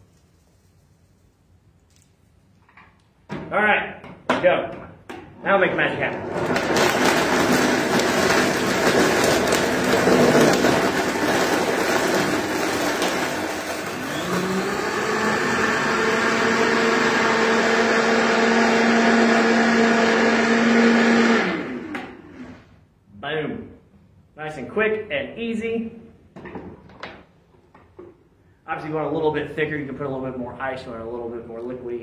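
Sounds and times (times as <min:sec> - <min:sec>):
blender crushing ice: 0:06.2 - 0:22.7.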